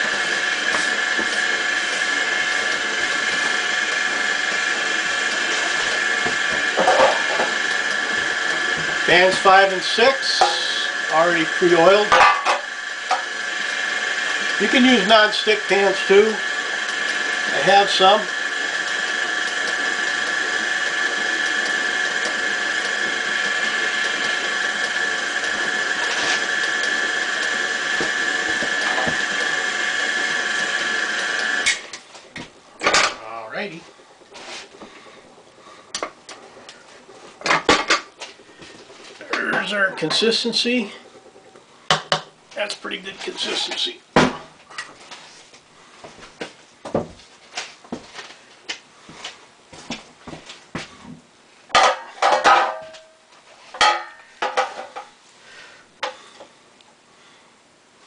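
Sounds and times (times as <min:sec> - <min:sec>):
stand mixer whining: 0:00.0 - 0:42.2
dough scraped from metal bowl: 0:34.3 - 0:34.8.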